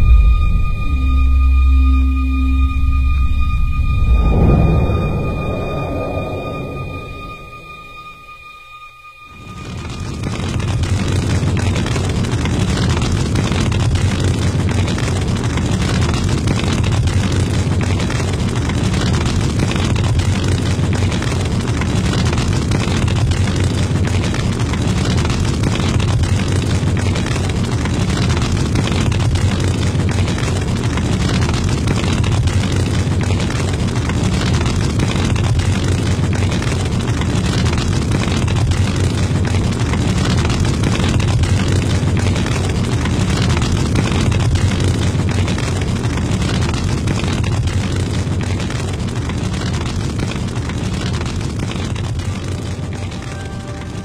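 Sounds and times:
loud deep rumbling: 0.0 - 18.0, 25.0 - 48.7.

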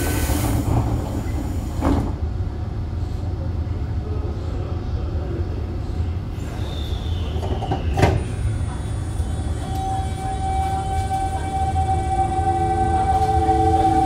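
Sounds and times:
subway car rumble: 0.0 - 14.0.

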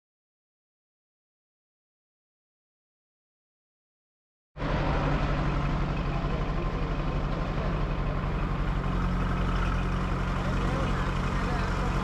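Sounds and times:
truck diesel engine running: 4.6 - 12.0.

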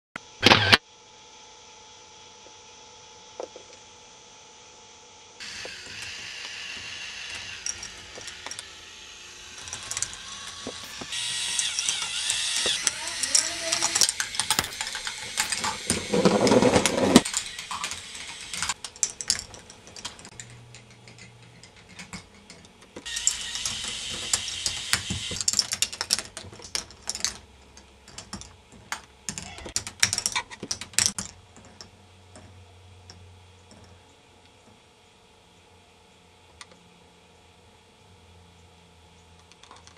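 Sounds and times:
plastic balls rolling on tracks: 5.4 - 27.4
mechanism clicks and clacks: 5.4 - 34.0.

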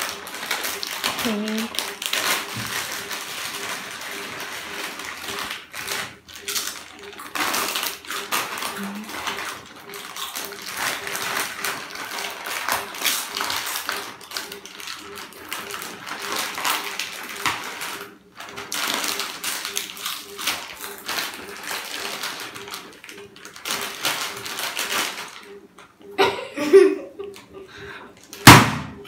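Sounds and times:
foil packets crinkling: 0.0 - 25.5
chips being crunched: 18.7 - 22.8.

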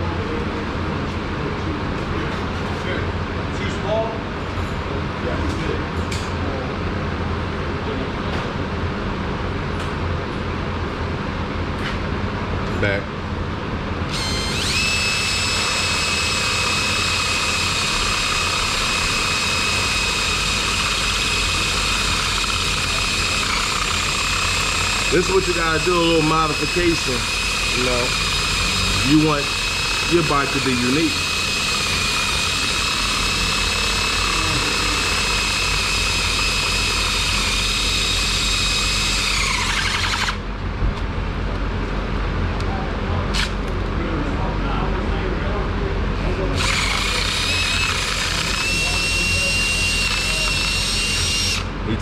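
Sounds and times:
high-speed motor whine: 13.8 - 40.6, 46.3 - 52.0.

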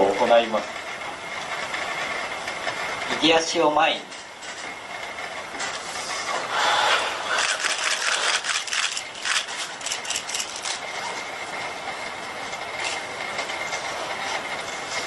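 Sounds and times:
steady high whine: 0.0 - 15.0
robot motors clicking whir: 7.3 - 10.8.

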